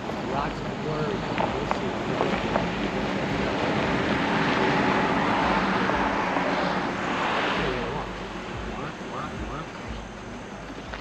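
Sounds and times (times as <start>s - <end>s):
vehicle driving past: 0.0s - 10.0s.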